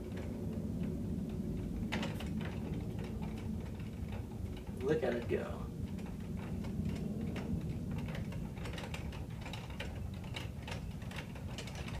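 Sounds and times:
wooden sculpture clicking and rattling: 0.0s - 12.0s.

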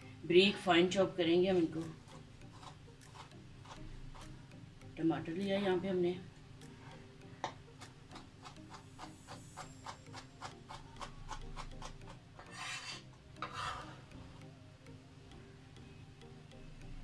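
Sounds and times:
knife blade scraping board: 12.4s - 14.0s.

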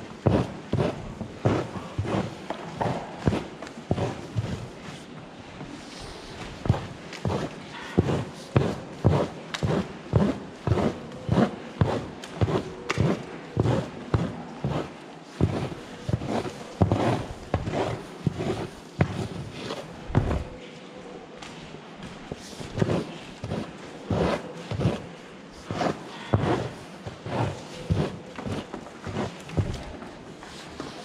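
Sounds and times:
scraper scraping and knocking on concrete: 5.9s - 20.5s, 22.3s - 31.0s.

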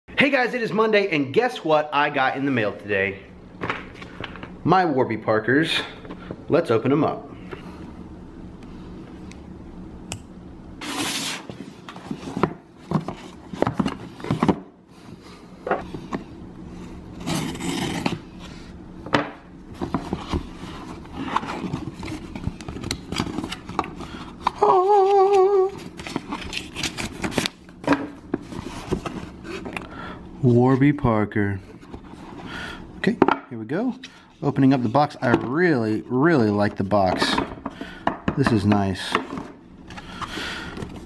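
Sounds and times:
cardboard scraping: 10.8s - 14.6s, 17.1s - 18.7s
paper rustling: 19.8s - 27.6s.

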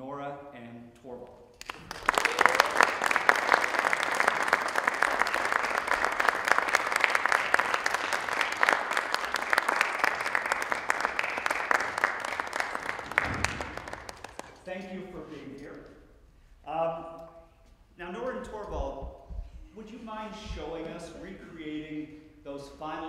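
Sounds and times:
audience applauding: 1.6s - 14.6s.

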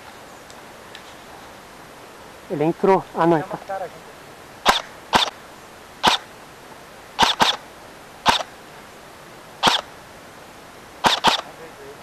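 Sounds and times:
airsoft rifle shots: 4.6s - 5.4s, 6.0s - 6.3s, 7.2s - 7.6s, 8.2s - 8.5s, 9.6s - 9.9s, 11.0s - 11.6s.

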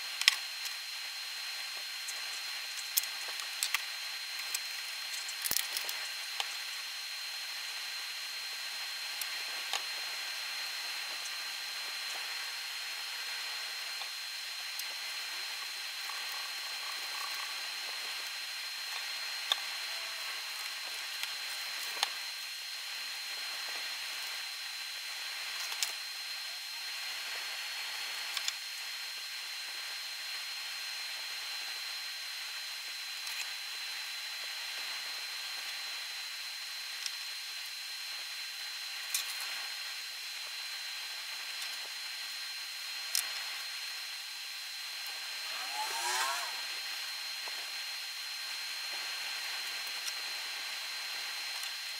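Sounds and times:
faint high whine: 0.0s - 51.9s
steady hiss: 34.4s - 51.9s.

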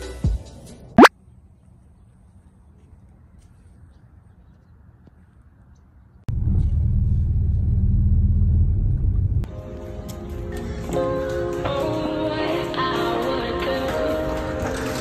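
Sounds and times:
road noise: 1.0s - 11.2s
car engine rumble inside cabin: 6.3s - 9.5s.

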